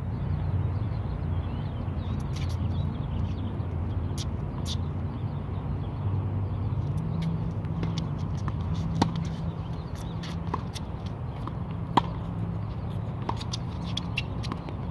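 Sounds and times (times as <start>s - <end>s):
tennis ball struck by racket: 7.0s - 14.9s.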